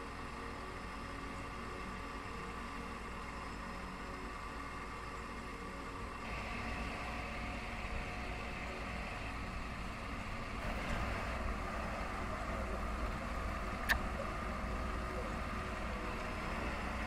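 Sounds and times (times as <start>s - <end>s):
diesel engine running: 6.0s - 17.0s.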